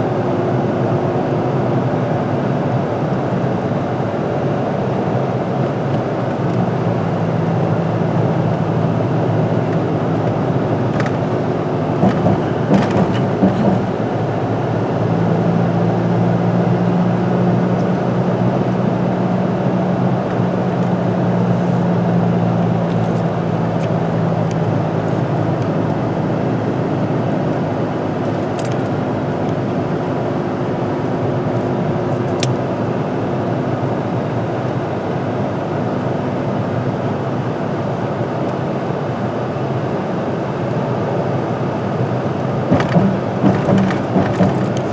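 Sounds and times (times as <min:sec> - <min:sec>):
car road noise drone: 0:00.0 - 0:44.9
short knocks: 0:12.0 - 0:14.0, 0:42.7 - 0:44.9.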